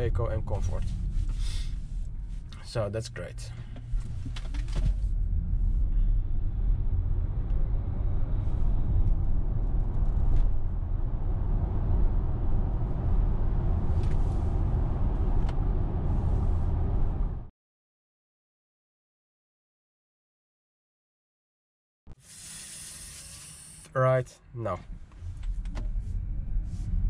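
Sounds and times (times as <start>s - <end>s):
road and tyre rumble: 0.0s - 17.5s, 22.1s - 27.0s
wind noise: 3.8s - 17.5s.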